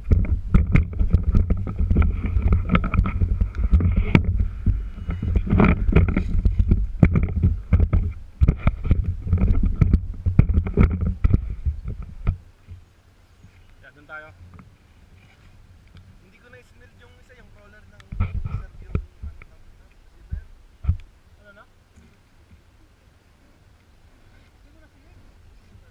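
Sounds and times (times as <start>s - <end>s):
camera handling knocks and rattles: 0.0s - 12.8s, 18.0s - 19.5s
wind buffeting microphone: 0.0s - 13.0s, 14.2s - 21.3s
faint steady whine: 0.0s - 25.9s.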